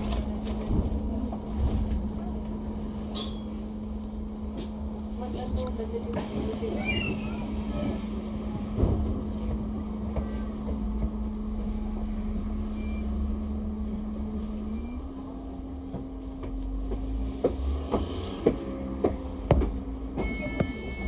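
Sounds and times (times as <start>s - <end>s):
bus engine rumble and hum: 0.0s - 21.0s
held low tone: 10.4s - 15.7s.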